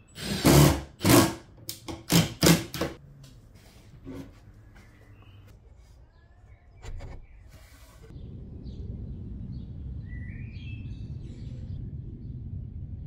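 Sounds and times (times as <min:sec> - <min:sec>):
small birds chirping: 0:04.7 - 0:11.8
low rumble: 0:08.1 - 0:13.0.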